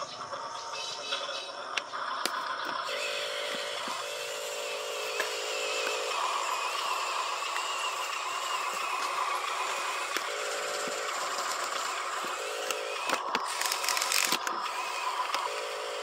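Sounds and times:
steady background hum: 0:00.0 - 0:16.0
toy truck motor whining: 0:00.0 - 0:16.0
clicks: 0:10.1 - 0:15.5.

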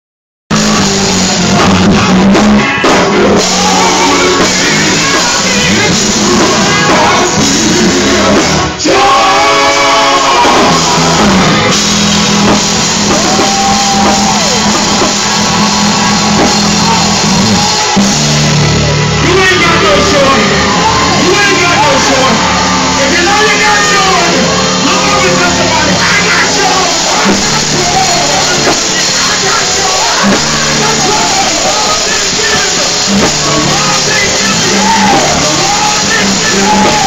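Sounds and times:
drum kit: 0:00.5 - 0:37.0
electric guitar: 0:00.5 - 0:37.0
keyboard: 0:00.5 - 0:37.0
men singing gospel: 0:02.9 - 0:11.2, 0:23.2 - 0:37.0.

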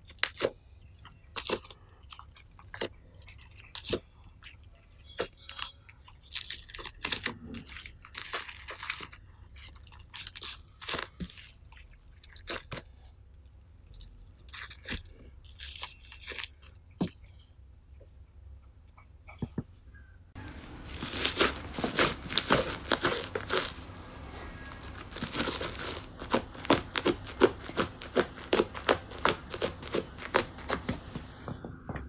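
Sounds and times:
slime crackling: 0:20.4 - 0:31.4.

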